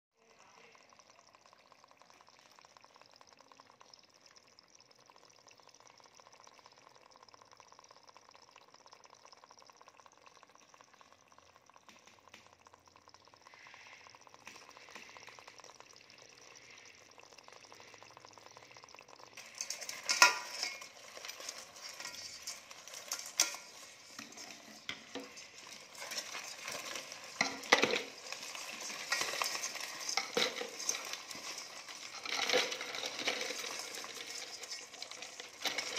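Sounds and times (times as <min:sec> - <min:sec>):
crabs scraping in metal pot: 0:17.5 - 0:35.9.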